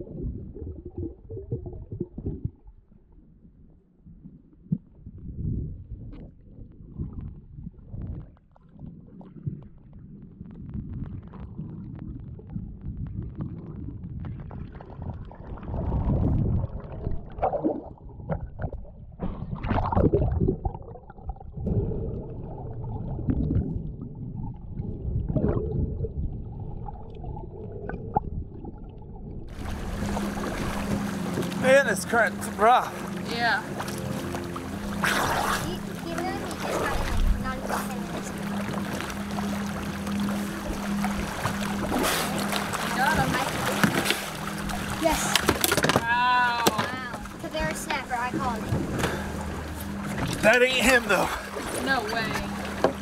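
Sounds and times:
underwater rumbling water: 0.0 - 53.0
underwater knocks and handling: 40.6 - 50.8, 51.6 - 53.0.

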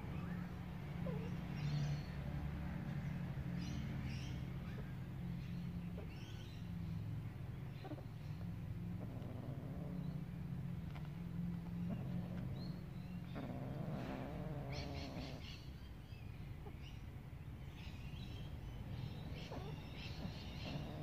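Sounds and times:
birds chirping: 0.0 - 21.0
cat growling: 1.0 - 1.4, 8.8 - 10.5, 11.7 - 15.6, 19.2 - 21.0.

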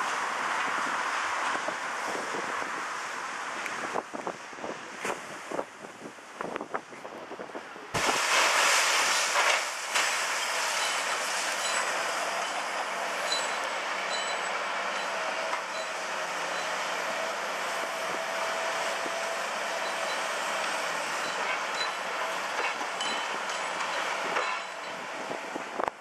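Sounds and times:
concrete rubble being worked: 8.0 - 16.0.

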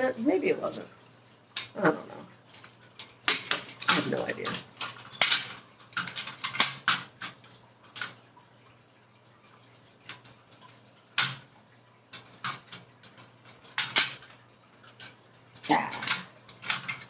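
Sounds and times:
camp stove parts clicking: 3.0 - 7.4, 13.5 - 14.3, 14.9 - 17.0.

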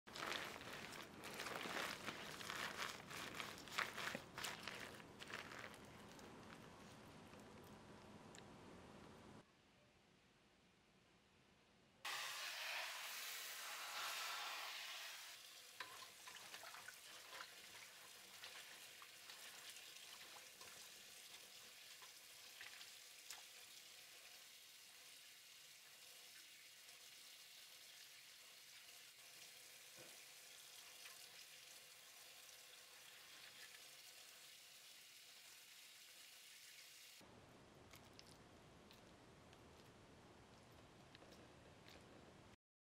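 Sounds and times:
water sloshing in a metal bowl: 0.1 - 7.4, 15.6 - 23.7.

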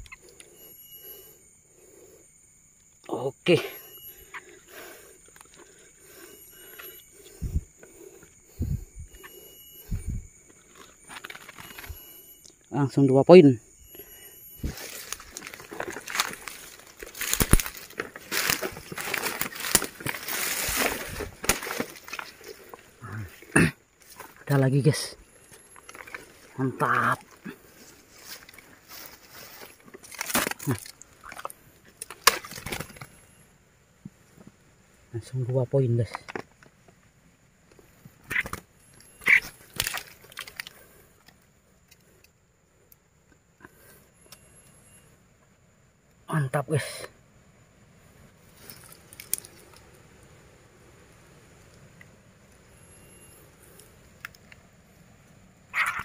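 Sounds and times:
footsteps through dry leaves: 14.7 - 22.6
twigs snapping: 14.8 - 22.8, 28.2 - 33.1, 39.2 - 41.4, 48.7 - 49.8
bird squawking: 38.3 - 39.6, 55.7 - 56.0.

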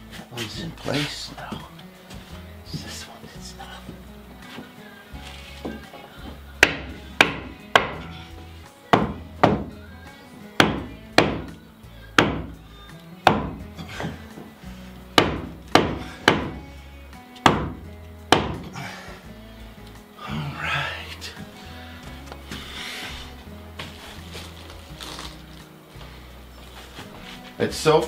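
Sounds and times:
hammer striking wooden block: 6.6 - 8.0, 8.9 - 9.7, 10.6 - 11.5, 12.2 - 12.5, 13.2 - 13.6, 15.2 - 16.6, 17.4 - 18.7.

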